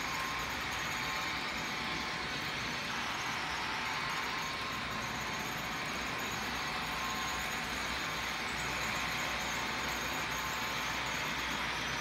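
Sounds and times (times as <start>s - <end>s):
model trains running on track: 0.0s - 12.0s.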